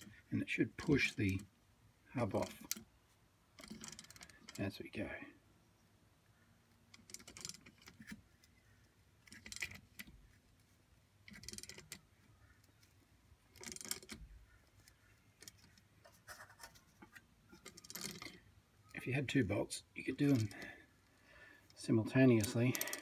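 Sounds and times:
socket ratchet clicking: 22.4 - 23.0.

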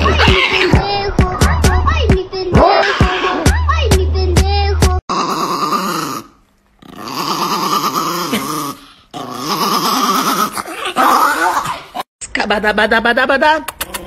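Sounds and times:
small dog growling: 5.1 - 11.7.

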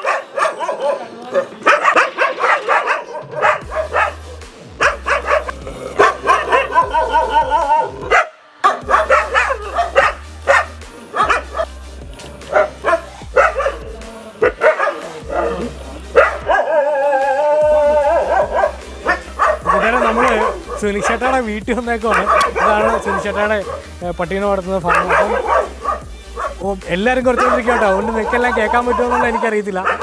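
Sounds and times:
dogs barking: 0.0 - 30.0
background music with low bass: 1.6 - 30.0.

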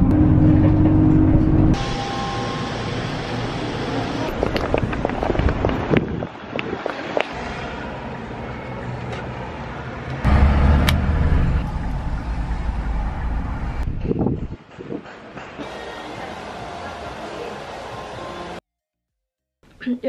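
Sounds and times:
car engine and road rumble: 0.0 - 15.0
street noise: 0.0 - 18.6.

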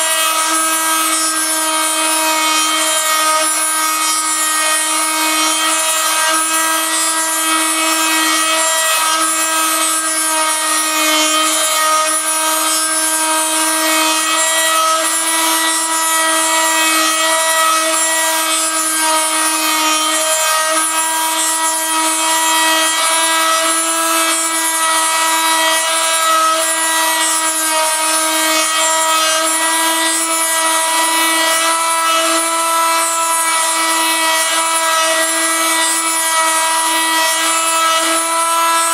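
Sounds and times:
rasp of wood being cut: 0.0 - 38.9
rotary tool high whine: 0.0 - 38.9.

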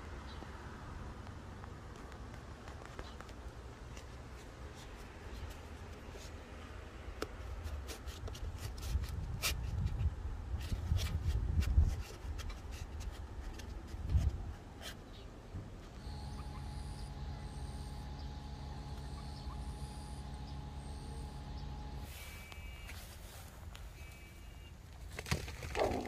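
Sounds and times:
plastic insert scraping in steel tube: 7.6 - 15.1.

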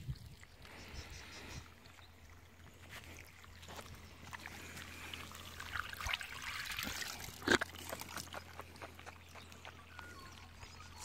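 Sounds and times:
water trickling onto dirt: 2.2 - 9.8.

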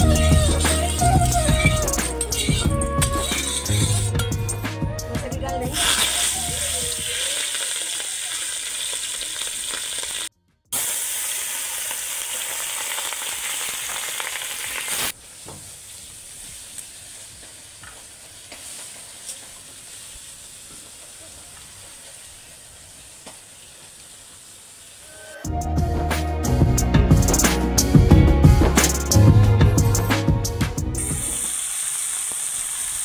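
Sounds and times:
fish sizzling in hot oil: 5.7 - 25.1, 31.0 - 33.0.

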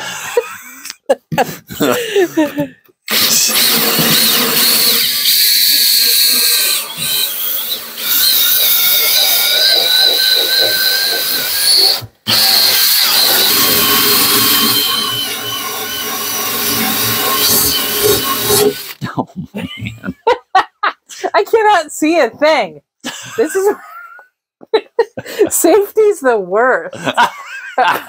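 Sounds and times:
drill wire brush scraping steel: 3.1 - 19.0.

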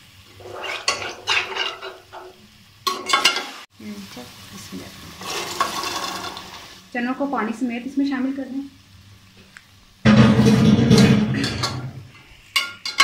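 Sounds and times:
food sizzling in hot oil: 0.0 - 13.0
metal spoon scraping a pot: 0.4 - 2.0.

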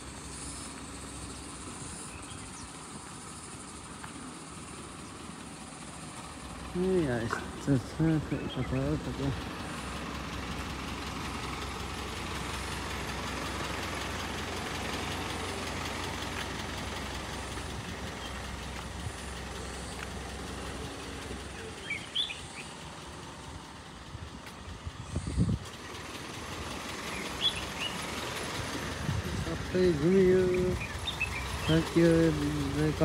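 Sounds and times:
bird chirps: 0.3 - 5.3, 8.2 - 9.0, 20.9 - 22.9, 27.1 - 28.4, 30.5 - 32.0.

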